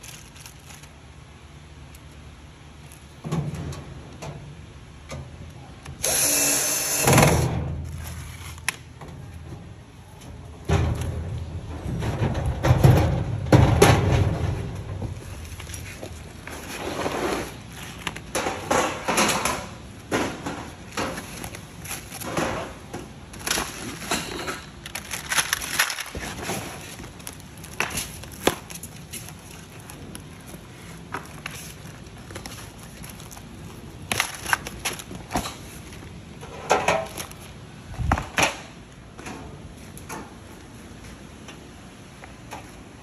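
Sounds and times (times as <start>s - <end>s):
plastic packaging crinkling: 0.0s - 1.0s, 24.8s - 36.0s.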